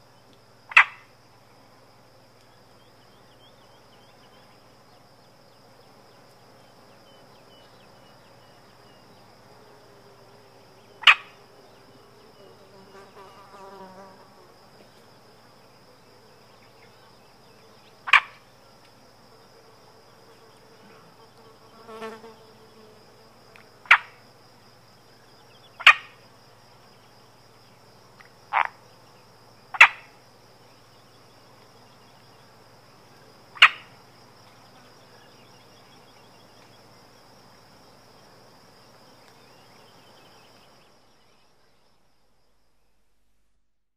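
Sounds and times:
insect trill: 0.0s - 43.5s
fly buzzing past: 9.6s - 15.4s, 19.5s - 24.2s.

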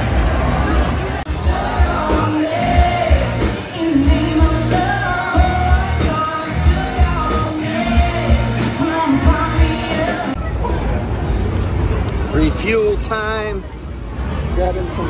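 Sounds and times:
rock song with singer: 0.0s - 10.4s
bass: 0.0s - 15.0s
drum beat: 1.3s - 10.4s.

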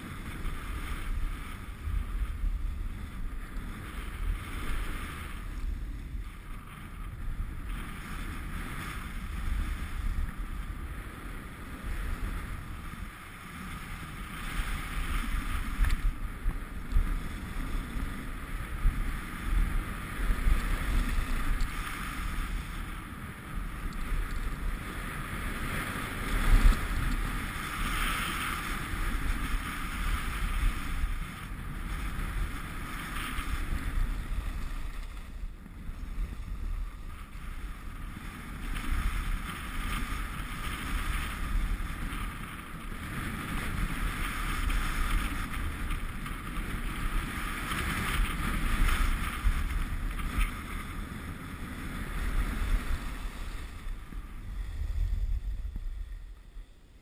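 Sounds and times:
hiss of sliding on snow: 0.0s - 56.7s
wind rushing over microphone: 0.0s - 57.0s
low rumble: 52.4s - 57.0s.

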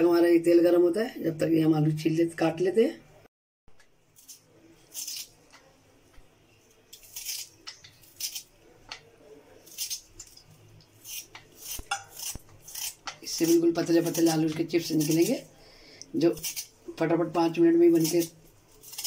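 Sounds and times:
peeler scraping potato: 4.2s - 5.6s, 6.9s - 9.0s, 11.0s - 15.4s, 16.2s - 19.0s.

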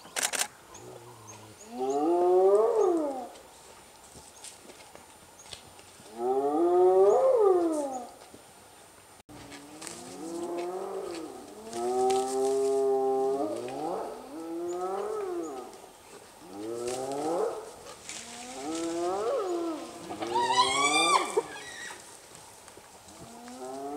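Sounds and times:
hyenas calling: 16.4s - 22.0s.

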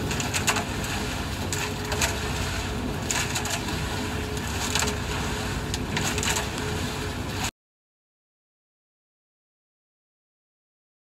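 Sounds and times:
cement mixer running: 0.0s - 7.5s
wet concrete tumbling in drum: 0.0s - 7.5s.

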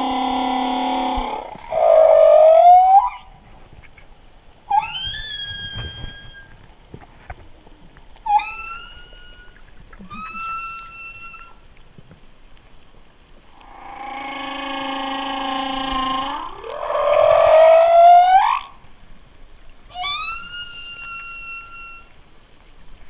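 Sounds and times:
whale calls underwater: 0.0s - 3.4s, 4.7s - 6.7s, 8.2s - 11.8s, 13.6s - 18.9s, 19.9s - 22.2s.

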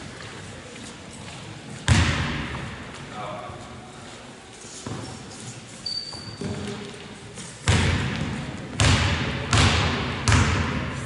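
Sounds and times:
basketball bouncing on wooden floor: 1.9s - 2.6s, 7.6s - 11.0s.

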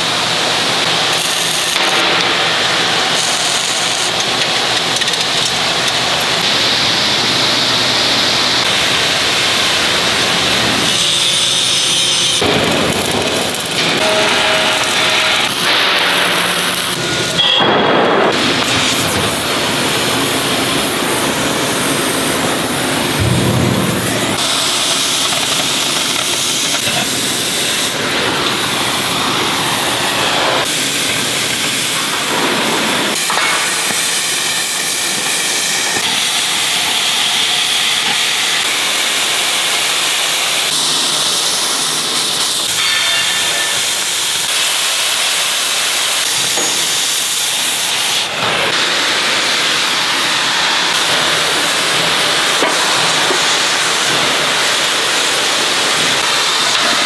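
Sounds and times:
cutting torch hissing: 0.0s - 57.0s.

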